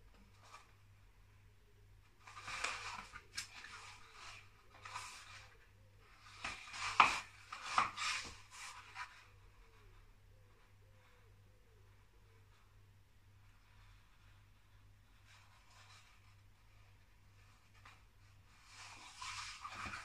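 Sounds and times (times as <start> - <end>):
paper rustling and crinkling: 2.2 - 5.6, 6.2 - 9.8, 17.5 - 20.0.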